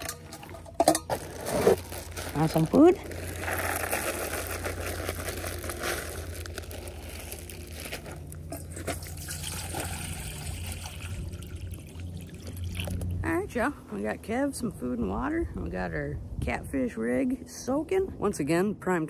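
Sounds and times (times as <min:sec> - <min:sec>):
plastic bag rustling: 0:00.0 - 0:11.4
low steady rumble: 0:00.0 - 0:19.0.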